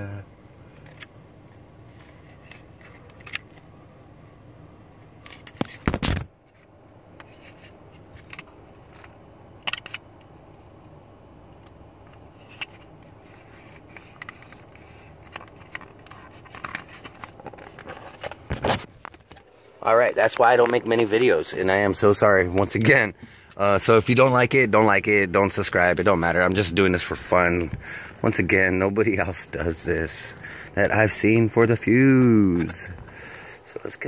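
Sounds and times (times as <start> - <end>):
low steady background noise: 0.0 - 34.0
handling clicks and scrapes: 1.9 - 3.7, 5.2 - 10.3, 12.0 - 21.4.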